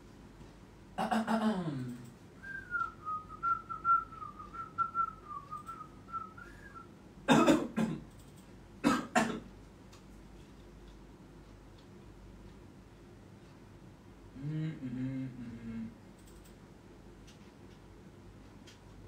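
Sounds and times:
man whistling a tune: 0:02.4 - 0:06.9
short coughs: 0:07.3 - 0:08.0, 0:08.8 - 0:09.5.

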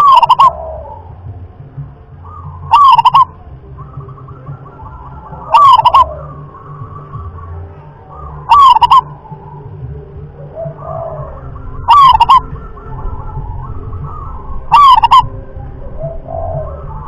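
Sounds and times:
dove cooing: 0:00.0 - 0:17.0
faint bird calls: 0:00.0 - 0:17.0.

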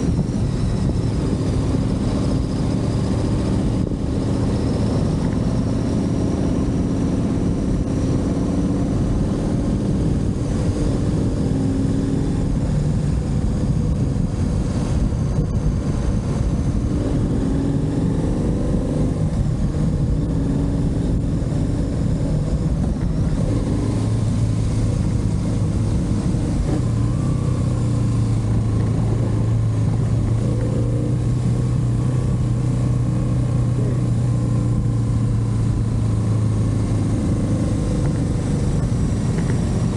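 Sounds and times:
motorcycle engine revving: 0:00.0 - 0:39.9
road noise rush: 0:00.0 - 0:39.9.

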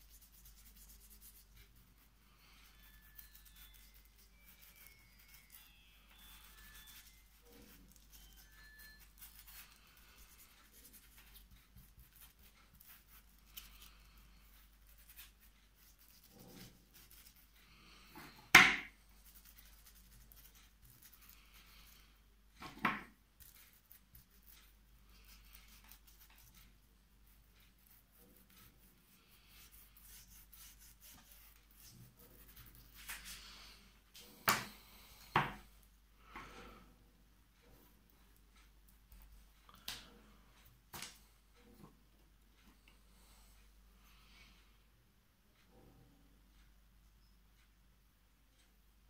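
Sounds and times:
paintbrush strokes on paper: 0:00.0 - 0:35.9.

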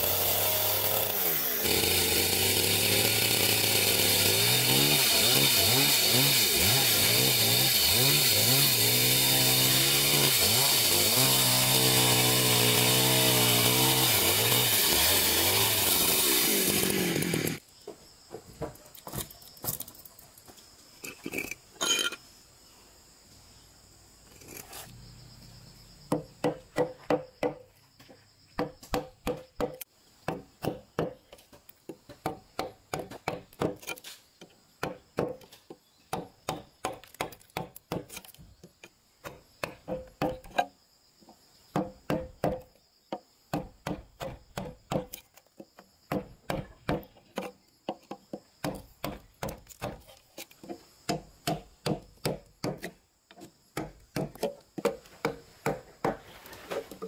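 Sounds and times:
wooden mallet striking chisel: 0:46.1 - 0:50.0, 0:51.1 - 0:52.9, 0:53.8 - 0:56.2.

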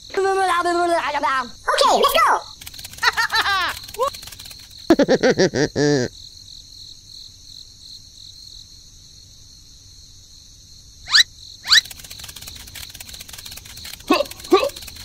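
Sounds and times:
rising squeaks: 0:11.1 - 0:15.0.

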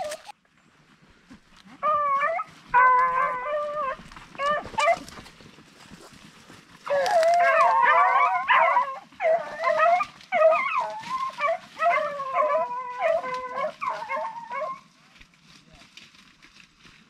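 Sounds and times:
hounds baying: 0:01.8 - 0:05.2, 0:06.8 - 0:14.9.

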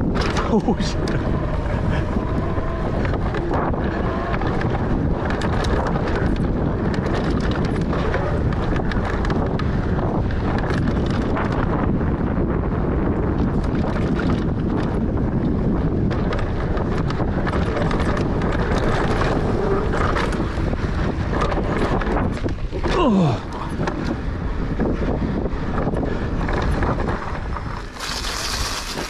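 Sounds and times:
bike tyres rumbling on dirt: 0:00.0 - 0:29.0
wind buffeting microphone: 0:00.0 - 0:29.0
bike rattling clicks: 0:02.9 - 0:12.0, 0:13.3 - 0:23.0.

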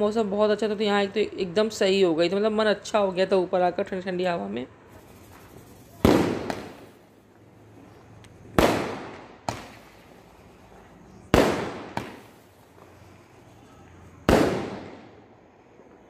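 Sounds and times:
fireworks bangs: 0:04.8 - 0:07.2, 0:08.4 - 0:16.0.

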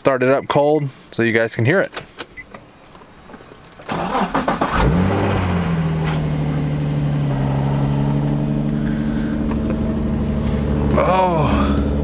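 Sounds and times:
car engine idling: 0:02.8 - 0:12.0
engine starter cranking: 0:03.8 - 0:05.5.

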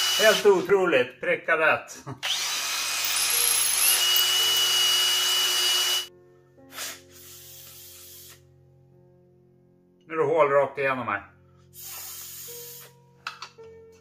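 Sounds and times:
cordless drill whining: 0:00.0 - 0:00.6, 0:02.2 - 0:06.1
puffs of air: 0:06.7 - 0:08.5, 0:11.8 - 0:13.0.

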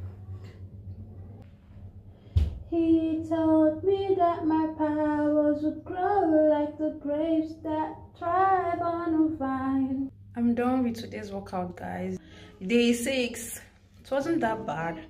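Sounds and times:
thump: 0:02.3 - 0:02.7
woman singing unaccompanied: 0:02.7 - 0:10.1.

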